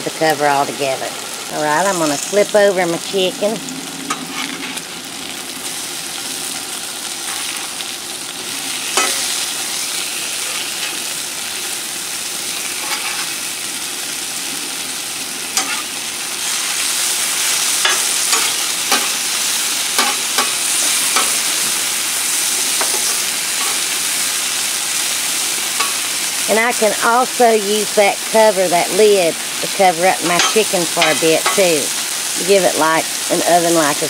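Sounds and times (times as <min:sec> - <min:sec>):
chicken sizzling on griddle: 0:00.1 - 0:34.0
metal spatula scraping and tapping: 0:09.0 - 0:09.3, 0:15.6 - 0:15.8, 0:17.8 - 0:19.1, 0:20.0 - 0:20.5.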